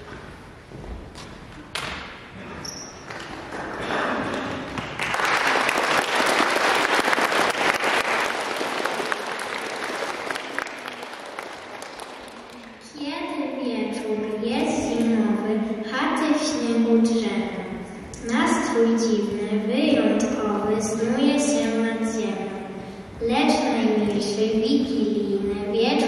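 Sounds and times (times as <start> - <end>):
audience applauding: 3.1 - 12.8.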